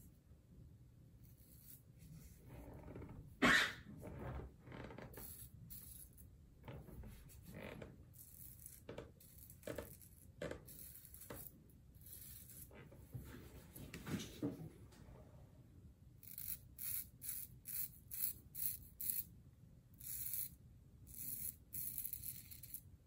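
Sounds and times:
razor scraping beard stubble: 1.2 - 3.8, 5.0 - 6.3, 7.0 - 12.9, 16.2 - 19.3, 20.0 - 22.8.

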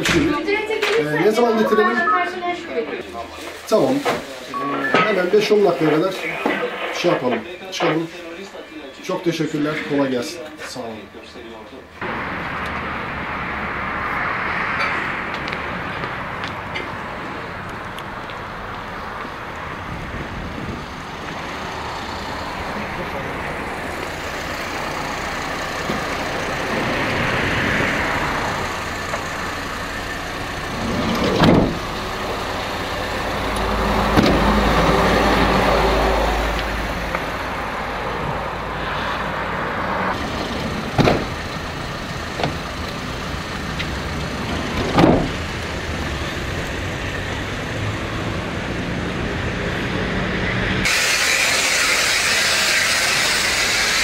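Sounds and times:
road traffic passing: 0.0 - 54.0
vehicle door shutting: 30.7 - 32.4, 34.0 - 34.8, 40.2 - 41.6, 42.3 - 42.7, 44.4 - 45.6.

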